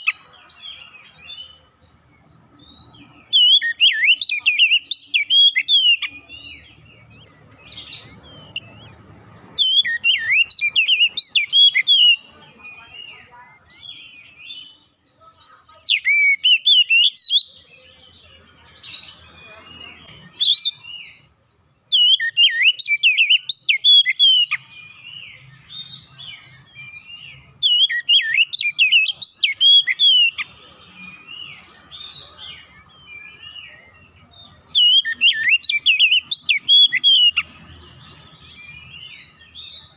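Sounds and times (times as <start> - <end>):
bird singing whistles and chirps: 0.0 - 14.8, 15.9 - 21.3, 21.9 - 39.9
soft bird twittering: 0.0 - 39.9.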